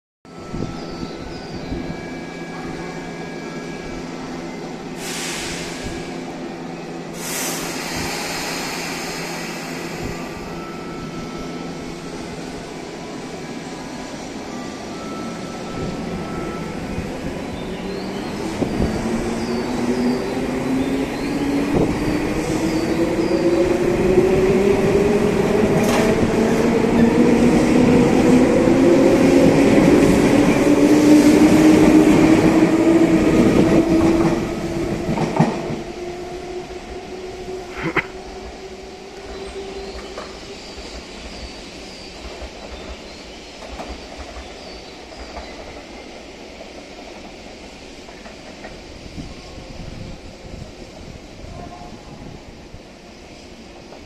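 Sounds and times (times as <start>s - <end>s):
short air hisses: 5.0s - 6.2s, 7.2s - 10.2s.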